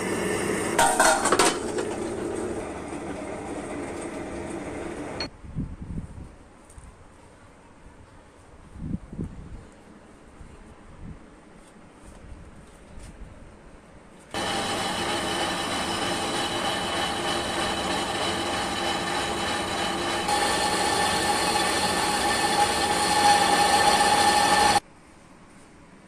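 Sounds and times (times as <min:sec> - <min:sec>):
metal lathe whine: 0:14.4 - 0:24.8.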